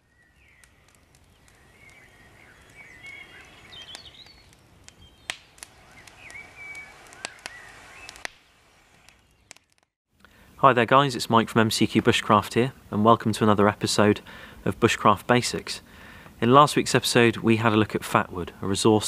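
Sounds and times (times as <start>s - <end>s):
songbirds singing and calling: 0.0s - 8.3s, 8.9s - 9.6s
faint outdoor hiss: 0.0s - 19.0s
sharp clicks or snaps: 3.9s - 8.4s, 9.1s - 9.9s.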